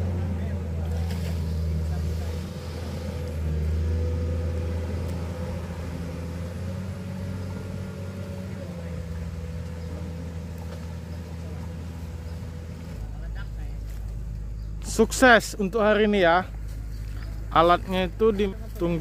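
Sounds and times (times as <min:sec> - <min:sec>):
distant excavator diesel engine hum: 0:00.0 - 0:19.0.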